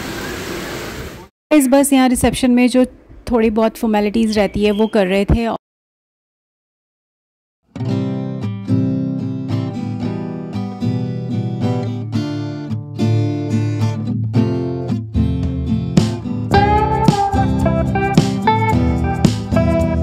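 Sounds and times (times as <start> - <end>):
strummed acoustic guitar: 7.7 - 20.0
higher melody line: 16.5 - 20.0.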